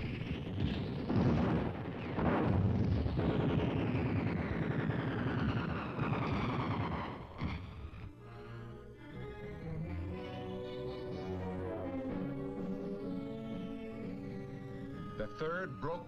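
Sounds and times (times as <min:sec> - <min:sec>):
music: 0:00.0 - 0:05.2, 0:05.8 - 0:16.0
explosions: 0:00.0 - 0:08.1
gunfire: 0:00.5 - 0:07.7.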